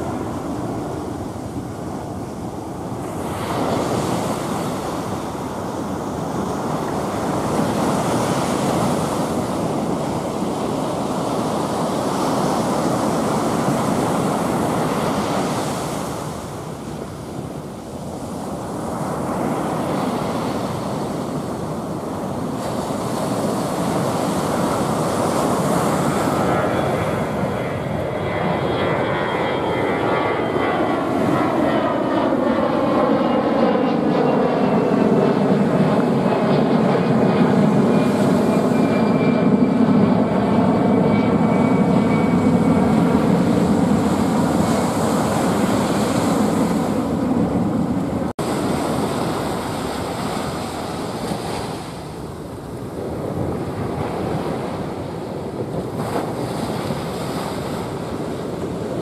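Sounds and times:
ocean surf breaking: 0.0 - 32.0, 35.1 - 39.1, 41.4 - 59.0
jet airliner climbing: 23.8 - 48.4.

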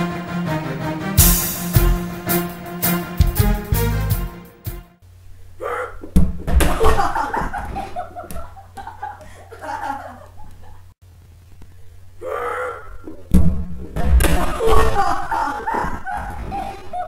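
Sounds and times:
people laughing: 6.6 - 10.9, 14.3 - 17.0.

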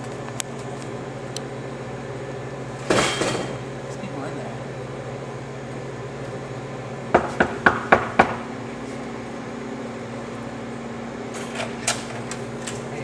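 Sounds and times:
steady low hum: 0.0 - 13.0
knuckles knocking on a door: 7.1 - 8.4.

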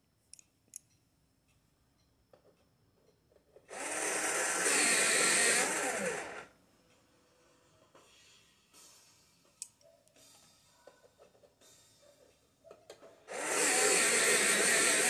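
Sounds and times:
loud steady whirring: 3.7 - 6.5, 13.3 - 15.0.

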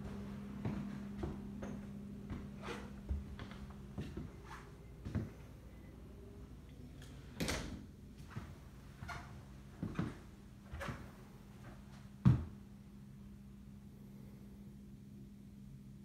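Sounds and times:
footsteps thudding on floor: 0.0 - 4.2, 12.2 - 12.5
low steady hum: 0.0 - 16.0.

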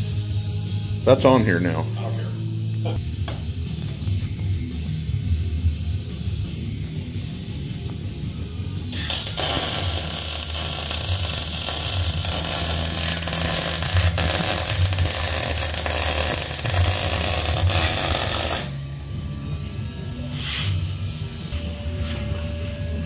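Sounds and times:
welding arc crackling hiss: 9.0 - 18.8.

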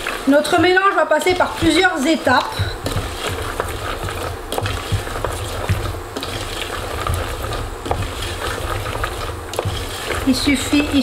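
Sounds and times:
faint sizzle: 0.0 - 11.0
low steady hum: 0.0 - 11.0
nuts and spoon scraping pan: 0.0 - 11.0.

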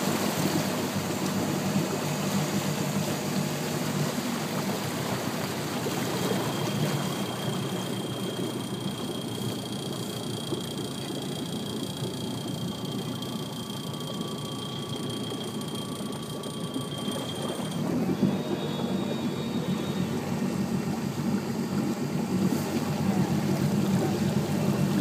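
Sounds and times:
boat engine running: 0.0 - 25.0
water lapping along hull: 0.0 - 25.0
faint high whine: 0.4 - 25.0.

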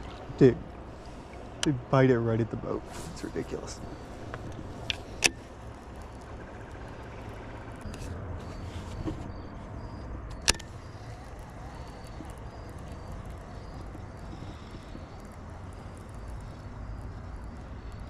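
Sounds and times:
steady low rumble: 0.0 - 18.0
sharp click: 10.3 - 11.3.

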